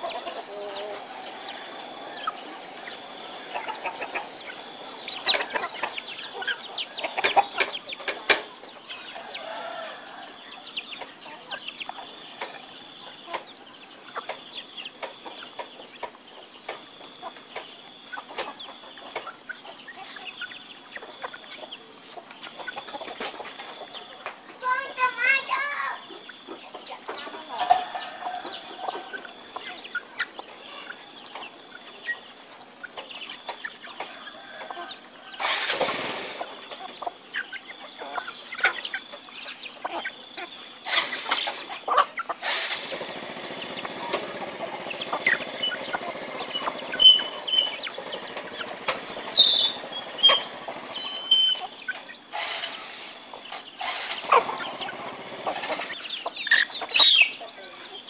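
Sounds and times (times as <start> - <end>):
chicks peeping: 0.0 - 58.0
hens clucking: 0.0 - 58.0
wing flapping: 35.4 - 36.6.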